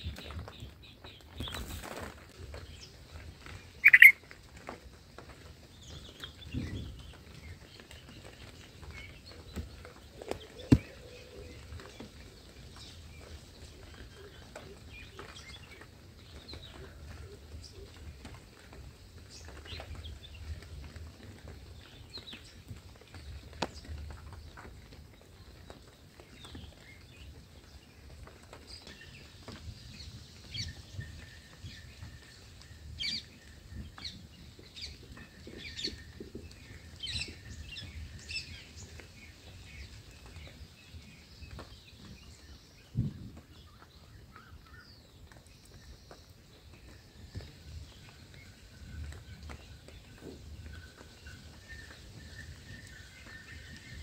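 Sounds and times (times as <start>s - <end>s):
soft low rustle: 0.0s - 44.1s
bird chirping: 2.6s - 4.2s
high bird chirps: 3.8s - 4.2s.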